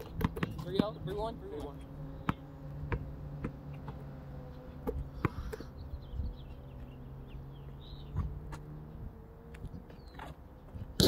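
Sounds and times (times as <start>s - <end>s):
basketball bouncing on asphalt: 0.0s - 7.0s.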